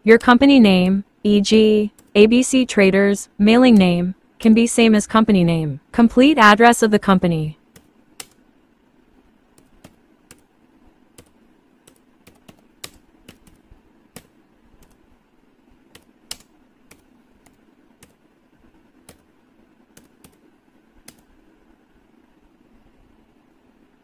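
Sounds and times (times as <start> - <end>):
faint steady hum: 0.0 - 24.0
typing on laptop keyboard: 7.7 - 8.4, 9.5 - 10.5, 11.1 - 15.0, 15.9 - 18.2, 19.0 - 19.3, 19.9 - 20.4, 21.0 - 21.3.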